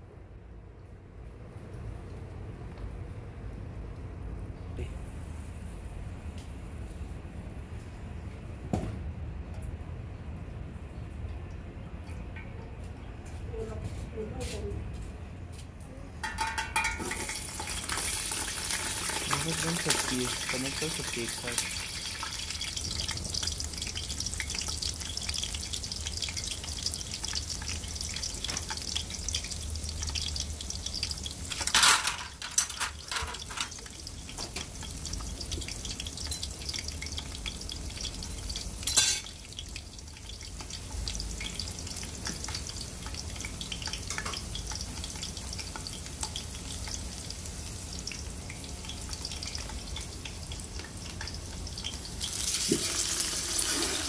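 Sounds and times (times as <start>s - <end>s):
onions sizzling in oil: 16.8s - 54.0s.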